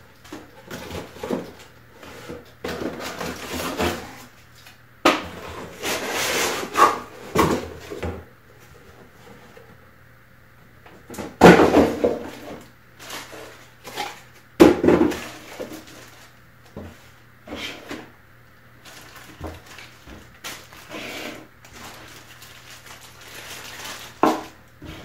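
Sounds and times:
packaging rustling: 15.1s - 16.4s, 18.8s - 24.6s.

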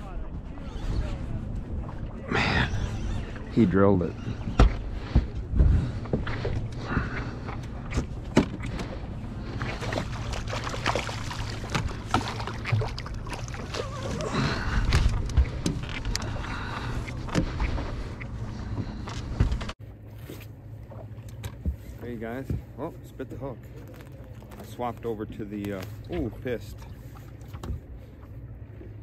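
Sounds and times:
steady low rumble: 0.0s - 29.0s
clicks and knocks of fishing gear: 14.8s - 16.4s.

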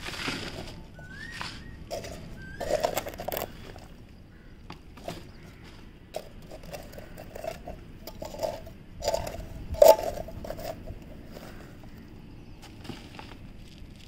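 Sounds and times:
hands scraping garden soil: 0.0s - 4.0s, 5.0s - 12.0s.

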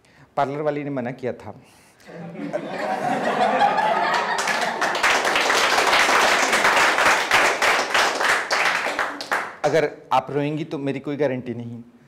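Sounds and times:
audience laughing: 2.1s - 5.6s
audience clapping: 2.5s - 9.8s.

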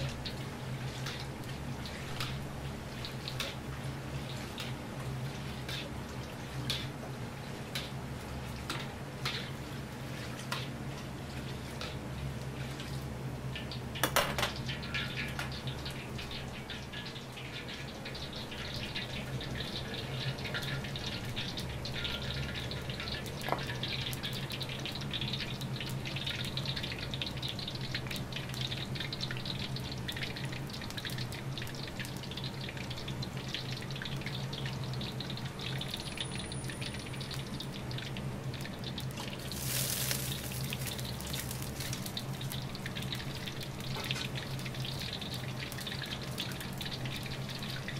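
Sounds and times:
oil crackling and sizzling: 0.0s - 47.9s.

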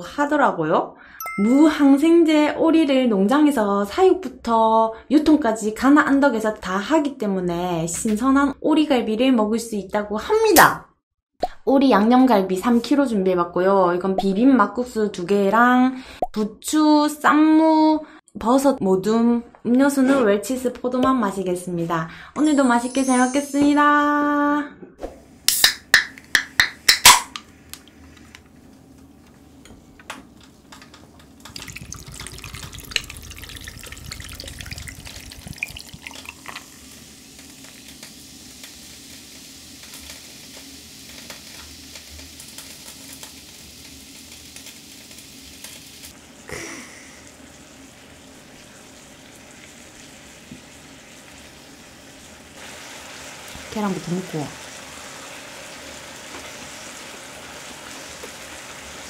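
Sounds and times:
soda poured over ice: 31.5s - 37.8s
meat sizzling in grill pan: 31.6s - 59.0s.

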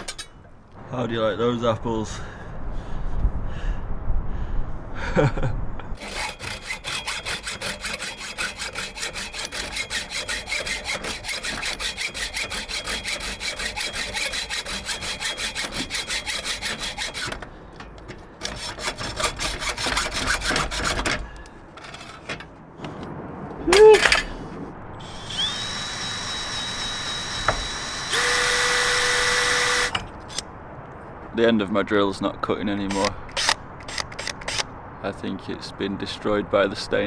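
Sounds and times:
hacksaw cutting steel: 0.0s - 0.3s, 6.0s - 22.4s, 25.1s - 30.4s, 32.9s - 34.6s.

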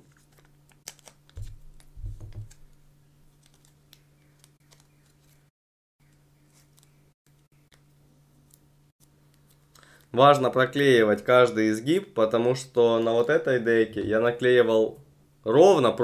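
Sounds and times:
grip tape crinkling and clicking: 0.0s - 5.4s.

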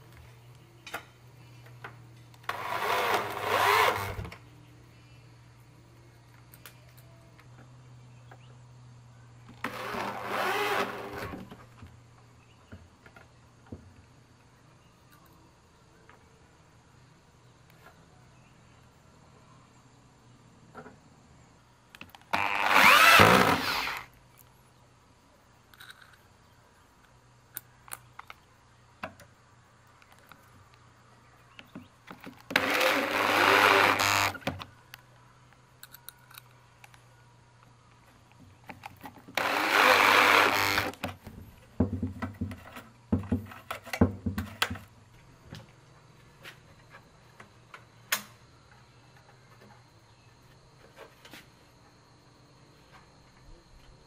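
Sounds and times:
electric drill driving screws: 2.5s - 4.3s, 9.6s - 11.4s, 22.4s - 24.1s, 32.5s - 34.5s, 39.3s - 41.1s.

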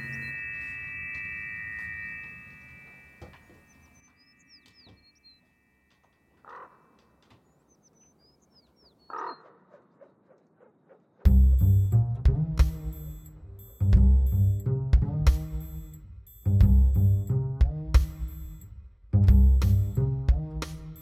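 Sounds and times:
ringing tone: 0.0s - 6.4s
bird chirps: 0.0s - 11.3s
caw-like bird calls: 6.4s - 7.4s, 9.0s - 11.0s.

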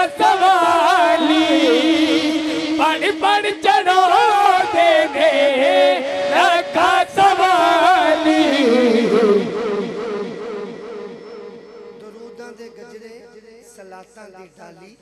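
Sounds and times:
steady held drone note: 0.0s - 13.6s
man singing devotional song: 0.0s - 15.0s.

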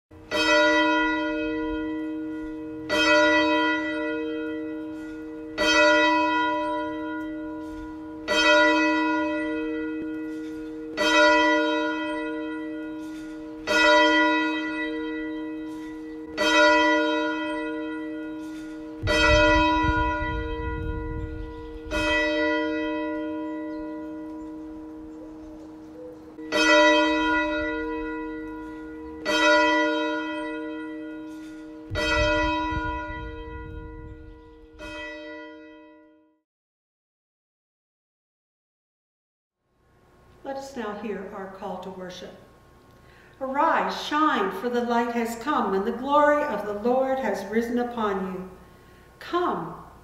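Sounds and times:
church bell tolling: 0.2s - 36.4s
brief low rumble: 31.9s - 34.9s.

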